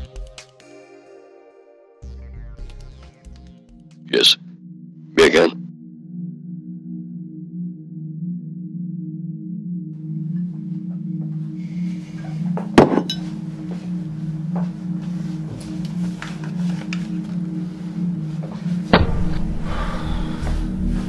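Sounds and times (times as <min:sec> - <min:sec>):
deep pulsing bass: 0:02.0 - 0:21.0
low drone: 0:04.1 - 0:21.0
sharp orchestral hits: 0:18.9 - 0:21.0.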